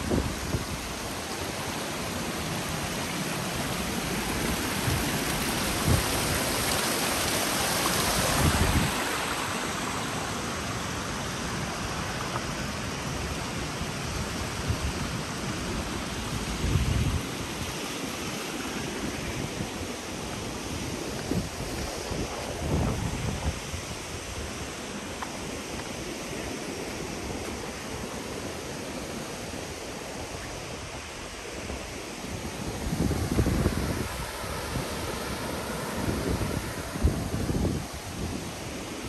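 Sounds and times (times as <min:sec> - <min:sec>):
waterfall rushing: 0:00.0 - 0:39.0
wind buffeting microphone: 0:20.7 - 0:24.6, 0:30.5 - 0:39.0.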